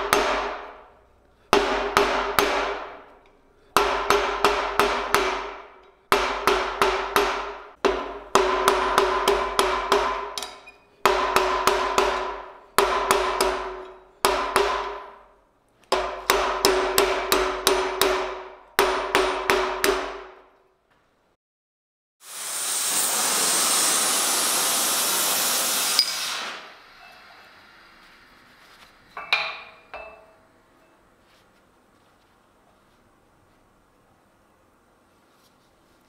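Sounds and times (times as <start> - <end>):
hammer striking hot steel on anvil: 0.0 - 20.5, 26.0 - 26.4, 29.2 - 31.0
anvil ringing: 29.2 - 31.0.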